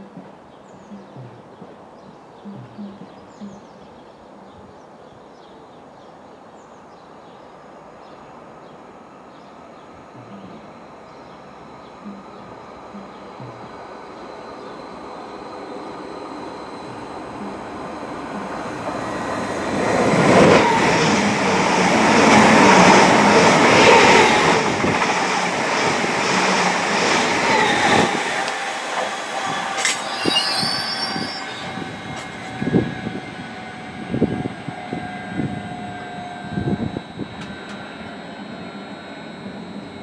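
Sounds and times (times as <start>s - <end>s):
train wheels rumbling on rails: 12.0s - 39.7s.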